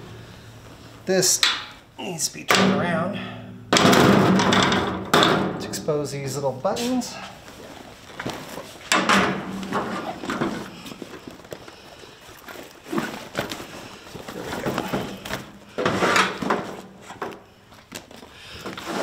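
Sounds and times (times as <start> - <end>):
heavy fabric rustling and flapping: 7.4 - 8.9.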